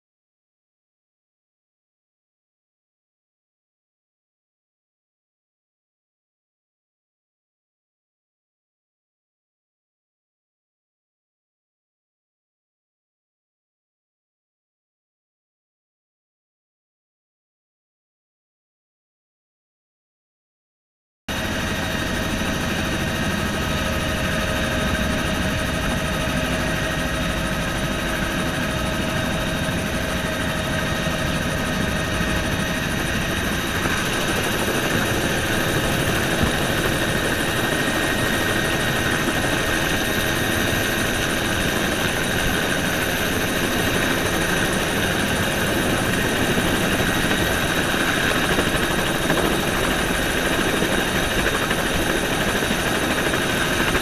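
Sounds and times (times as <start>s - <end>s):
helicopter rotor and engine: 21.3s - 54.0s.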